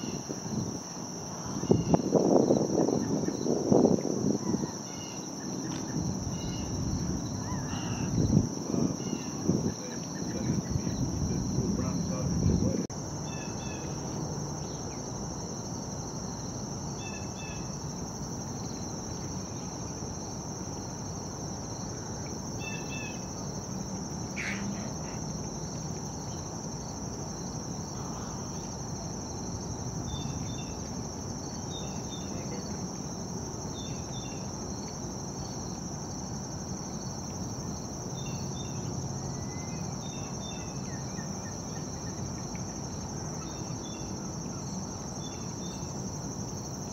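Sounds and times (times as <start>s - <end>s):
high-pitched insect trill: 0.0s - 46.9s.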